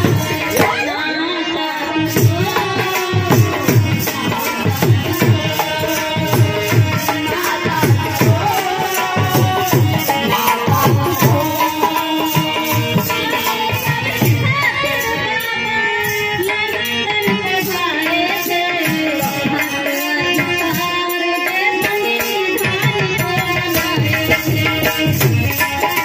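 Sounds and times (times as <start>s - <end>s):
drum beat: 0.0s - 1.0s, 2.2s - 13.2s
person singing: 0.0s - 26.0s.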